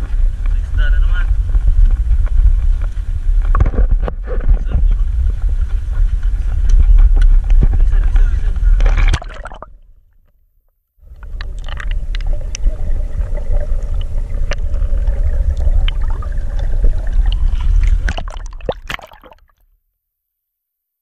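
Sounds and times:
low rumble: 0:00.0 - 0:09.8, 0:11.0 - 0:18.8
water gurgling and sloshing: 0:00.0 - 0:10.3, 0:11.0 - 0:19.6
faint steady hum: 0:11.0 - 0:19.4
sharp splashy clicks: 0:18.1 - 0:19.5.

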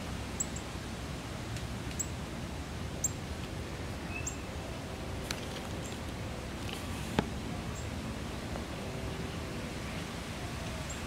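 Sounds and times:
steady background hiss: 0:00.0 - 0:11.0
bird chip calls: 0:04.0 - 0:04.5.

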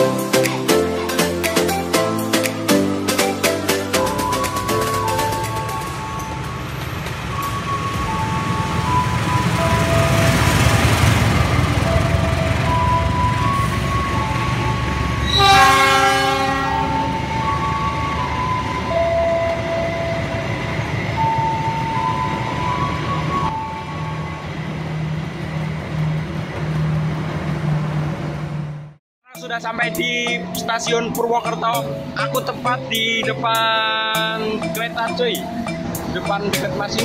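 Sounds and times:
diesel locomotive rumble: 0:03.5 - 0:29.0, 0:29.9 - 0:37.0
train horn: 0:15.2 - 0:17.3.

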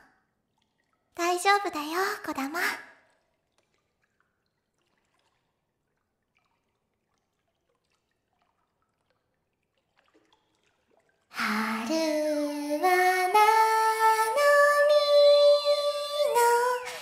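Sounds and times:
faint water drips: 0:00.0 - 0:12.1.

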